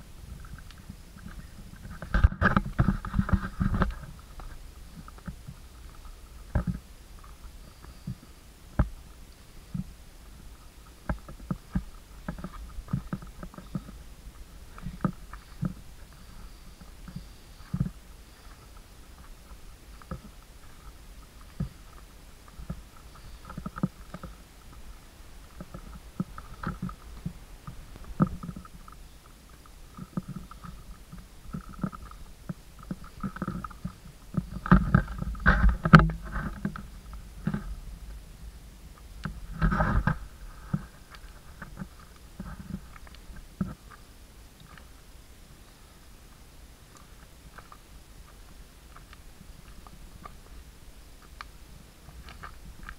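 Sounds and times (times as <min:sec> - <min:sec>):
camera handling rumble: 0:00.3 - 0:08.2, 0:11.0 - 0:38.2, 0:39.2 - 0:44.0
footsteps on stony trail: 0:09.8 - 0:37.9.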